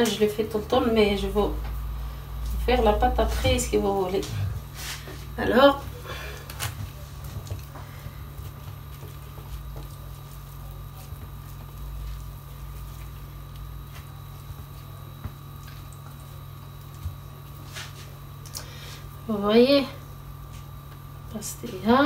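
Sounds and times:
low hum with high tone: 0:00.0 - 0:22.0.

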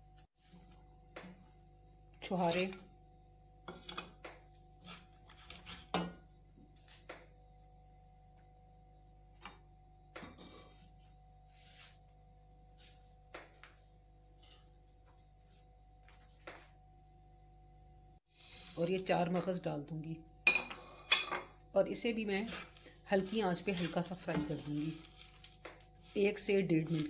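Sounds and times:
spatula scraping frying pan: 0:04.8 - 0:06.0, 0:22.1 - 0:27.0.

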